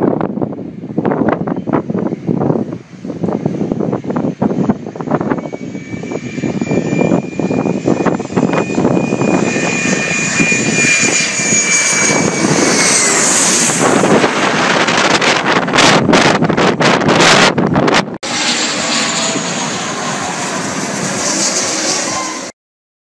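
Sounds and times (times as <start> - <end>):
airplane engine whine: 0.0 - 22.6
rush of airplane engine noise: 0.0 - 22.6.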